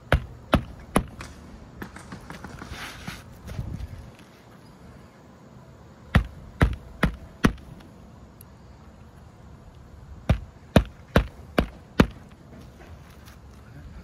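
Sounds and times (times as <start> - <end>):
hammer striking roofing nails: 0.1 - 2.6, 6.2 - 7.7, 10.3 - 12.3.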